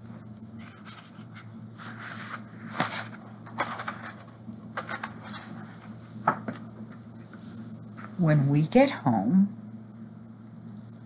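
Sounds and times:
low steady hum: 0.0s - 11.0s
book pages rustling: 0.2s - 8.2s.

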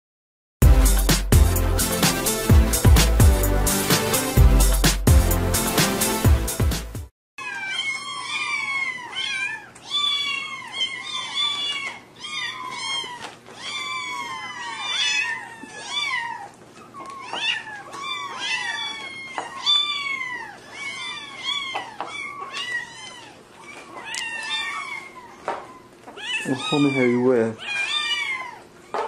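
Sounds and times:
kittens mewing: 7.4s - 29.0s.

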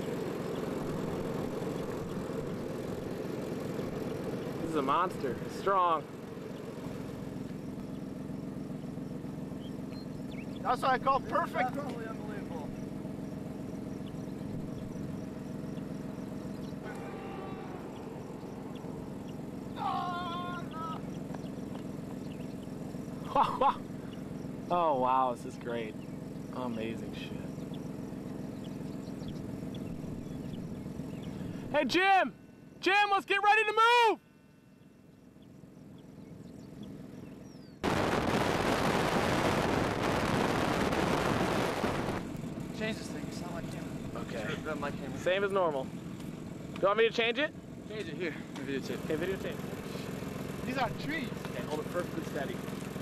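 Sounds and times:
vehicle engine idling: 0.0s - 53.0s.

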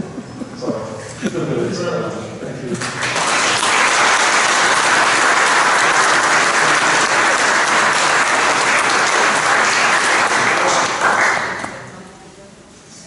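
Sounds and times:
audience applauding: 2.8s - 11.9s.

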